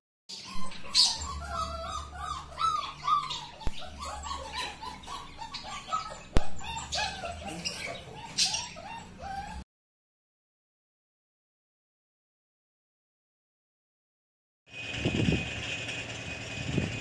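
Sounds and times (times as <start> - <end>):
puppies whining and yelping: 0.3 - 9.7.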